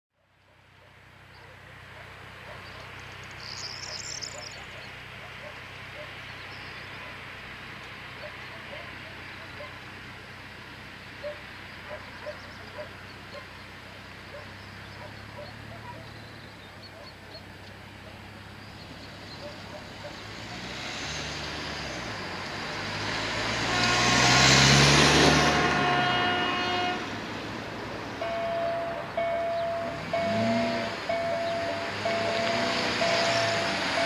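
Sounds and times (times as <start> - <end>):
faint bird chirps: 2.5 - 7.2
car passing by: 18.9 - 34.0.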